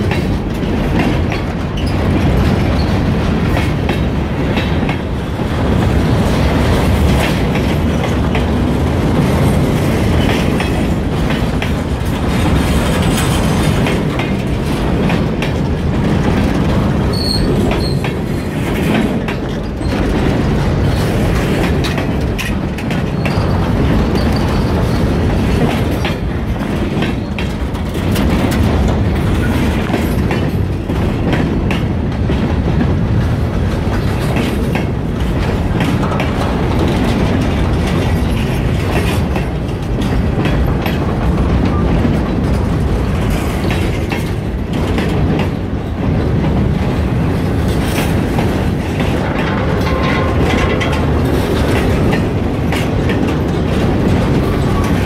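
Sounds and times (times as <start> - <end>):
freight train rumble: 0.0 - 55.0
wheels clattering over rails: 0.0 - 55.0.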